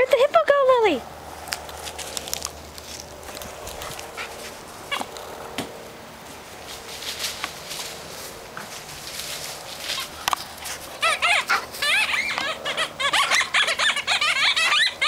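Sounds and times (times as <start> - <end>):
squeaky toy squeak: 11.0 - 15.0.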